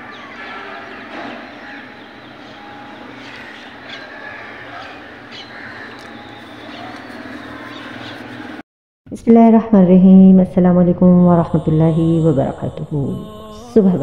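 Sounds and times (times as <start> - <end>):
birds chirping: 0.0 - 8.6
steady low background hum: 0.0 - 14.0.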